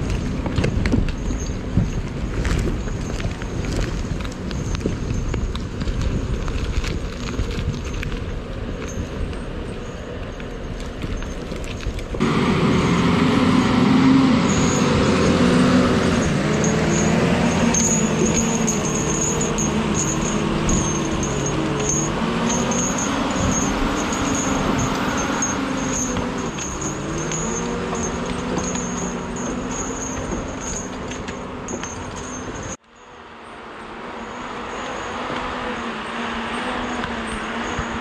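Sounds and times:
high squeal: 9.7 - 38.0
diesel engine running: 11.0 - 32.8.

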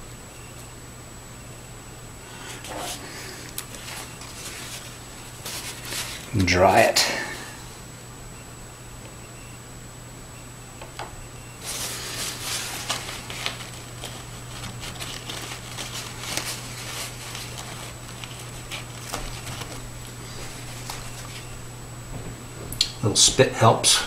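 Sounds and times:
paper towel rustling and crinkling: 2.5 - 7.3, 11.6 - 21.6.

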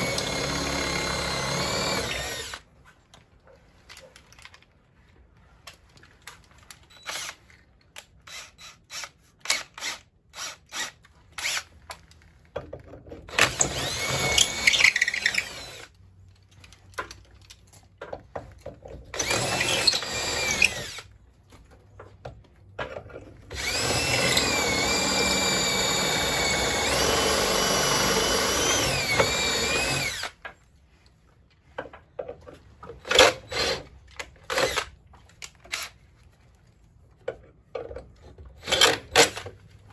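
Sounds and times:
cordless drill boring into wood: 0.0 - 2.7, 7.0 - 7.4, 8.3 - 11.7, 13.3 - 15.9, 19.1 - 21.1, 23.5 - 30.4, 38.6 - 39.4.

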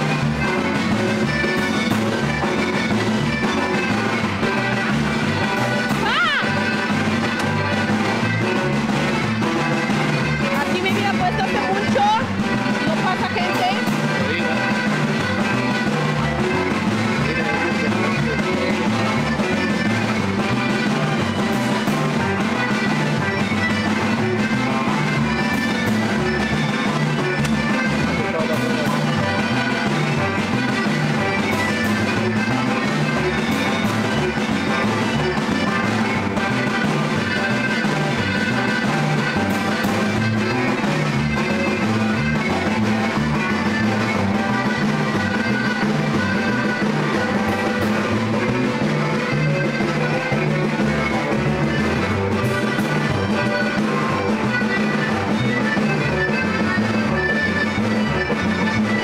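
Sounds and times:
button accordion: 0.0 - 59.0
guitar: 0.0 - 59.0
rhythmic bass line: 0.0 - 59.0.

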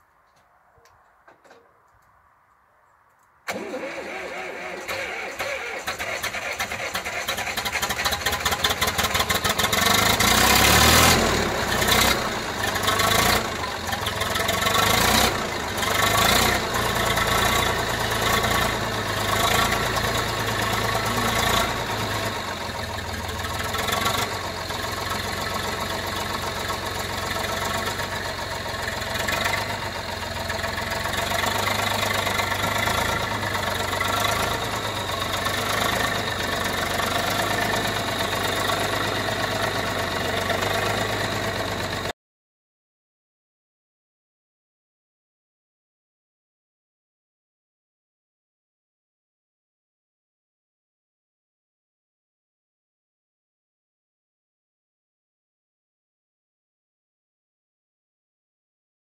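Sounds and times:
diesel tractor engine starting: 3.4 - 42.2.

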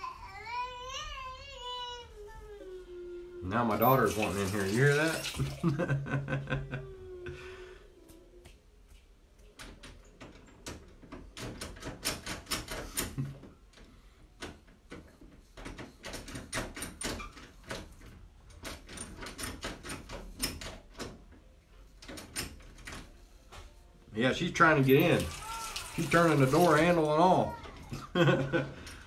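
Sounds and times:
latch clicks and rattles: 9.6 - 13.4.

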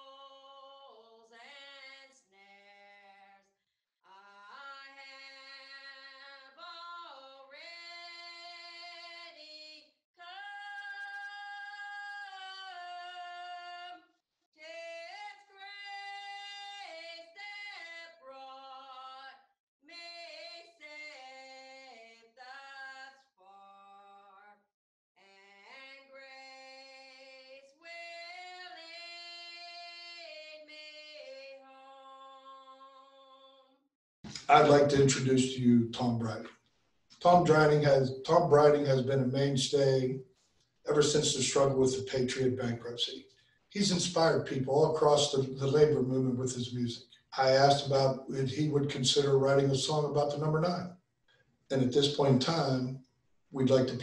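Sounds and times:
woman singing unaccompanied: 0.0 - 3.4, 4.1 - 14.0, 14.6 - 24.4, 25.2 - 33.6.

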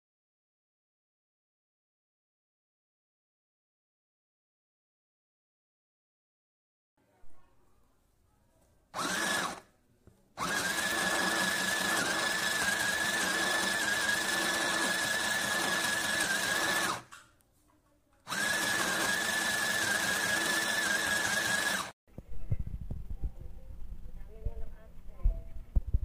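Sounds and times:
sewing machine motor whining: 9.0 - 9.6, 10.4 - 17.1, 18.3 - 22.0.

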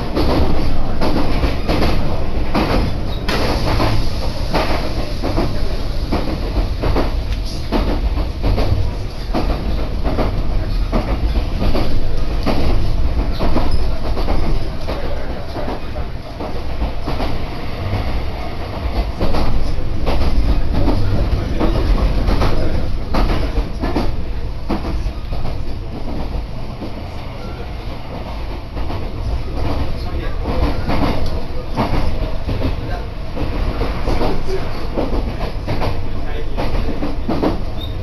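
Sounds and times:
train cabin rumble: 0.0 - 38.0.

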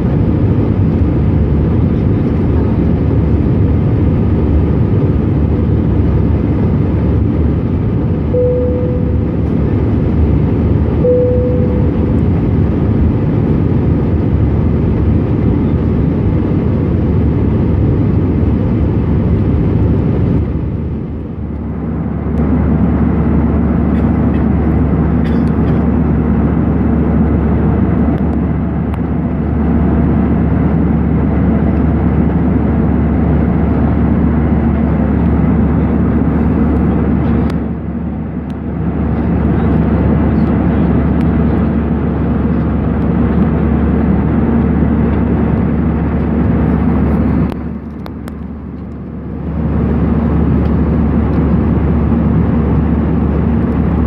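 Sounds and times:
jet engine cabin drone: 0.0 - 54.0
short cabin tones: 8.3 - 9.9, 11.0 - 12.4.

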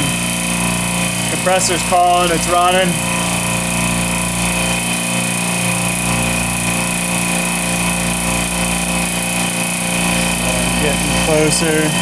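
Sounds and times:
compressor humming: 0.0 - 12.0.

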